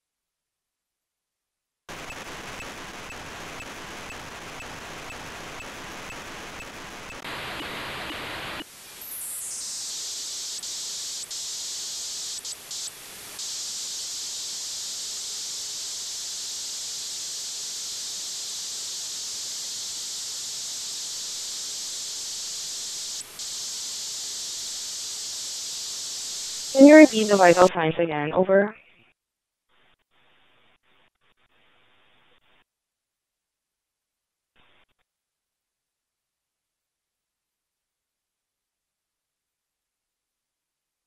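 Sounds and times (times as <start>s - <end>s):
data signal hiss: 1.9s - 28.9s
radio receiver hiss: 1.9s - 28.9s.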